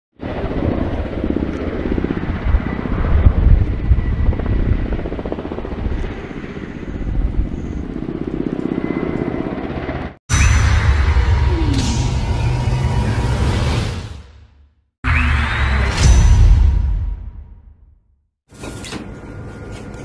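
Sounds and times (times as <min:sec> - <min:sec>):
helicopter rotors beating overhead: 0:00.1 - 0:10.2.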